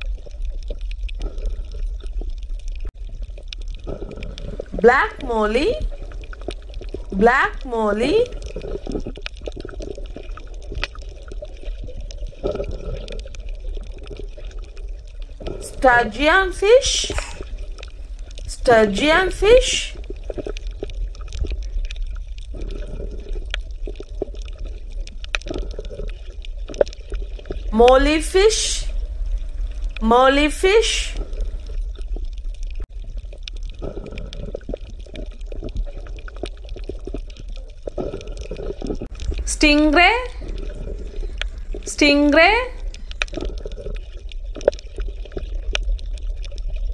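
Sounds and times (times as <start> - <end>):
water bubbling and trickling: 0.0 - 46.9
low hum: 39.0 - 43.6.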